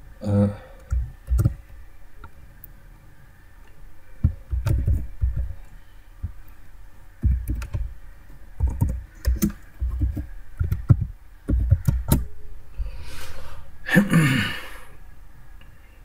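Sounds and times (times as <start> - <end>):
keyboard typing: 0.8 - 1.6, 4.2 - 5.7, 7.2 - 8.0, 8.6 - 12.3.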